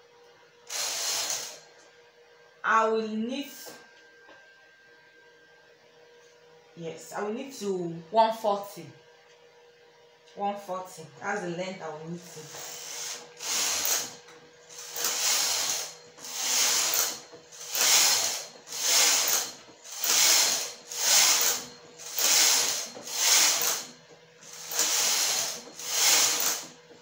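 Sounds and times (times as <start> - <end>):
knitting machine carriage passing: 14.8 - 23.8, 24.5 - 26.8.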